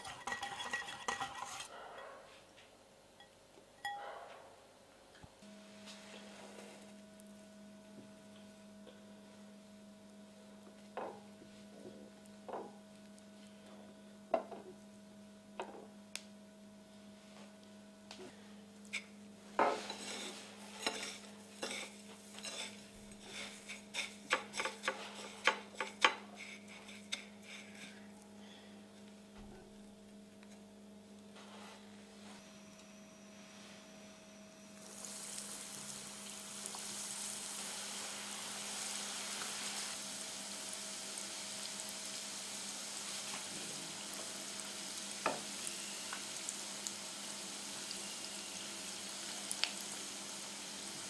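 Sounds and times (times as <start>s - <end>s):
faint steady hum: 0.0s - 51.0s
crackles of rolling in breadcrumbs: 49.2s - 51.0s.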